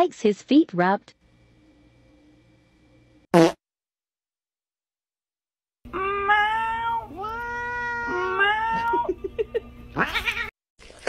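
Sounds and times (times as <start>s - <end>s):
cat rising call: 5.9s - 9.1s
cat yowling meows: 5.9s - 9.2s, 10.0s - 10.5s.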